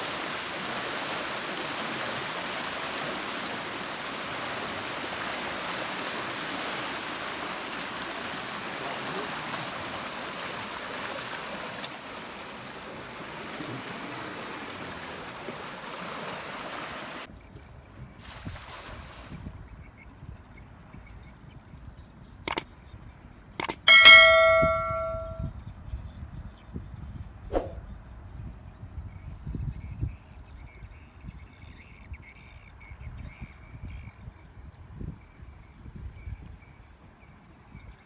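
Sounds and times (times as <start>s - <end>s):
water rushing through channel: 0.0s - 17.3s
sharp click: 23.6s - 25.4s.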